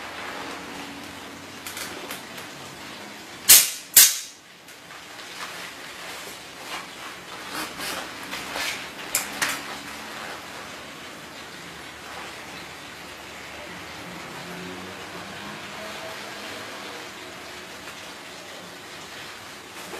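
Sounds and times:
nail gun firing: 3.5 - 4.4.

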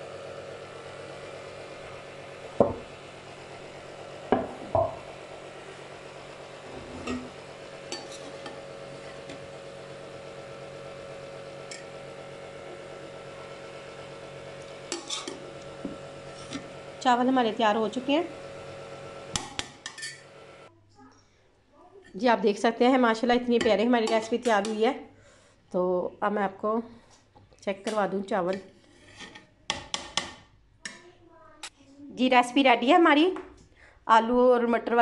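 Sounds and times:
metal utensils clanking on pot: 7.9 - 8.6, 14.9 - 15.4, 19.4 - 20.2, 23.6 - 24.8
spoon clinking and scraping rice: 7.9 - 8.6, 14.9 - 15.4, 19.5 - 20.3.

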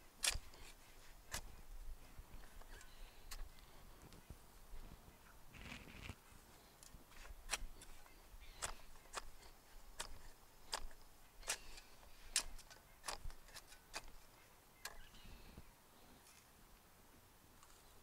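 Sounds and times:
spade chopping into dry soil: 0.0 - 1.7, 7.1 - 15.1.

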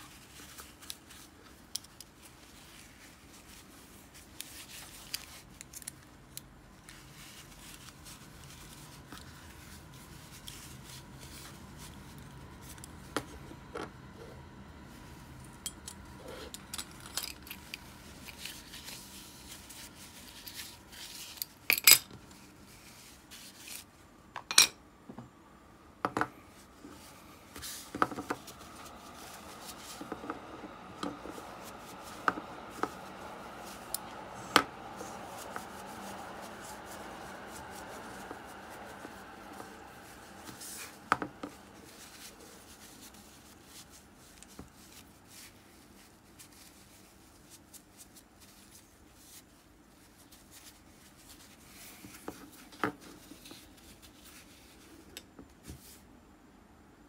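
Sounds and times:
tissue rubbing metal parts: 0.0 - 13.4, 14.9 - 24.0, 26.5 - 55.1.

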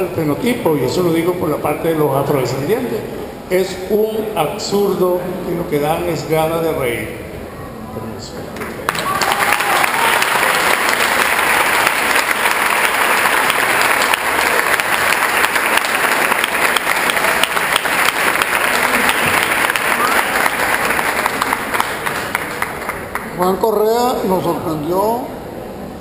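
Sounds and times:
audience applauding: 8.6 - 23.4.

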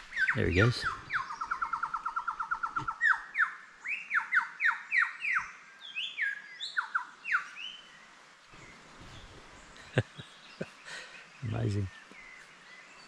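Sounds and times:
lyrebird whistling song: 0.0 - 7.9.

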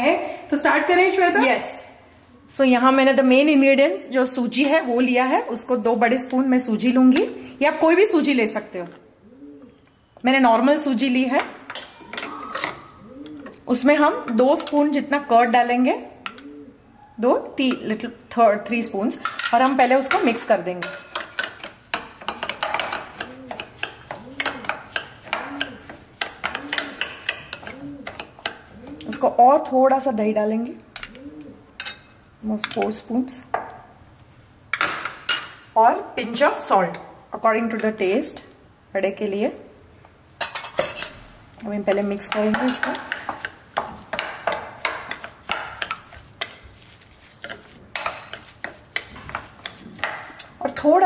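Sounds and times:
spoon scraping glass bowl: 44.6 - 51.0.

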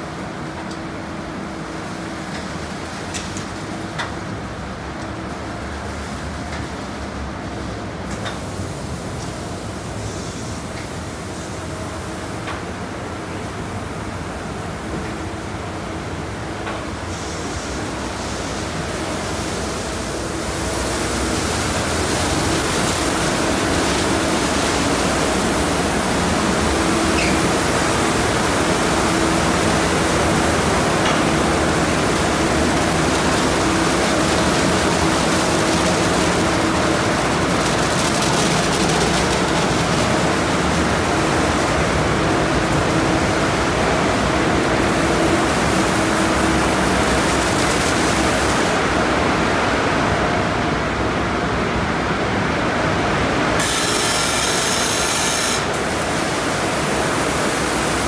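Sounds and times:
bright spray hiss: 53.6 - 58.0
water spray: 53.6 - 58.0.

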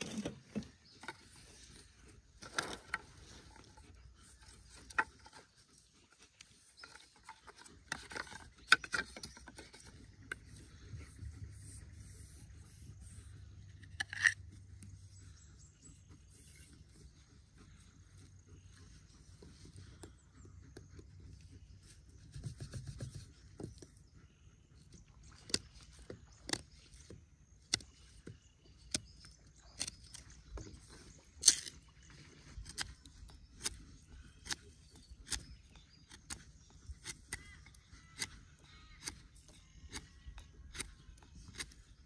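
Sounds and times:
knife cutting wood: 0.0 - 14.6, 25.4 - 31.9, 39.9 - 42.0.

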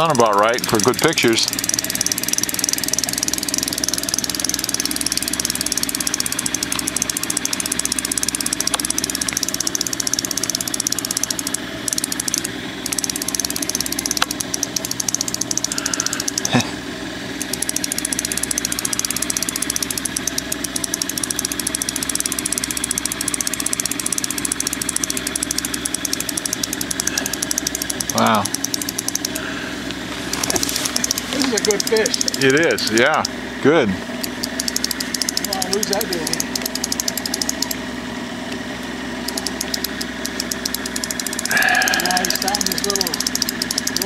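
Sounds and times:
outboard motor idling: 0.0 - 44.0
faint ticks: 1.5 - 16.6, 17.4 - 29.3, 34.2 - 35.5, 39.3 - 44.0.

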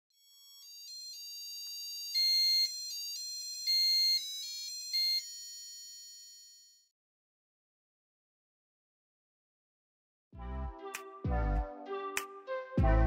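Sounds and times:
electronic buzzer beeping melody: 0.1 - 6.9.

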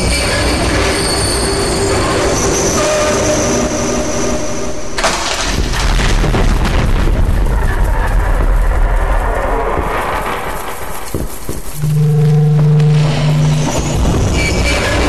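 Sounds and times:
squealing tones: 0.0 - 5.6, 6.2 - 15.0
low rumble: 3.6 - 15.0
thin high whine: 9.2 - 15.0.

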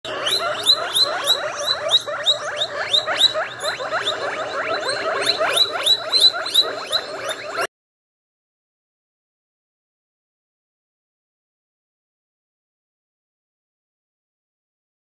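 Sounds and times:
guinea pigs wheeking: 0.0 - 7.7.

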